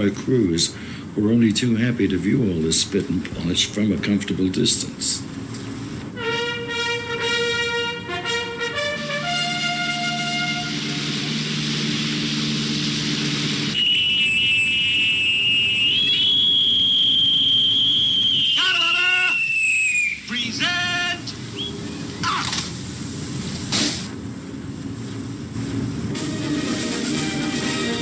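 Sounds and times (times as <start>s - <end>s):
low held tones: 5.8s - 20.3s
shrill whistled note: 6.2s - 22.4s.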